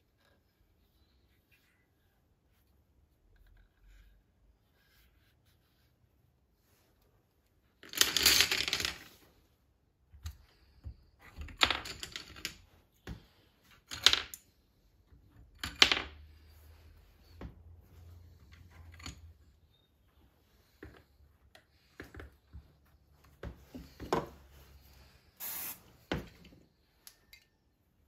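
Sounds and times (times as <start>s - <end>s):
wooden pencils clattering: 7.7s - 9.4s, 10.2s - 19.6s.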